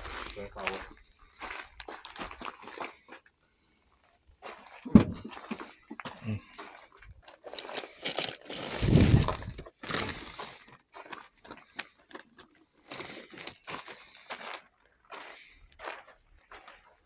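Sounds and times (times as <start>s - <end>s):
heavy thump: 4.9s - 5.3s
shopping bags rustling: 7.2s - 10.6s.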